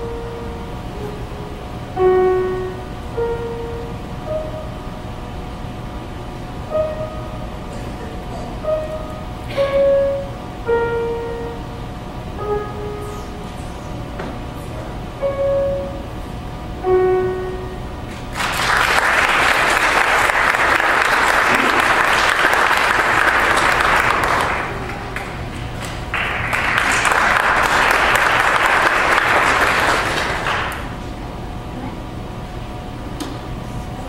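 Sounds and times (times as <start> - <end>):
grand piano notes: 0.0 - 32.3
audience applause: 18.3 - 31.0.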